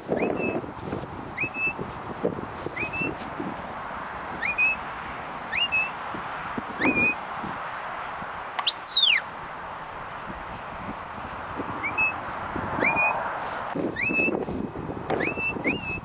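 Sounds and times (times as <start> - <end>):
long rising and falling whistle: 8.6 - 9.2
upward-sliding whistle notes: 8.6 - 9.2.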